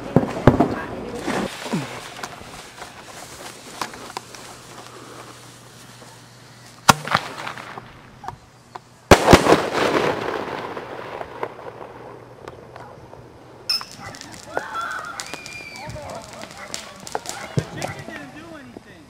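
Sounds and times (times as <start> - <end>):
firework shell bursting: 0.0 - 18.4
firework launch bang: 6.8 - 8.0, 9.1 - 12.2.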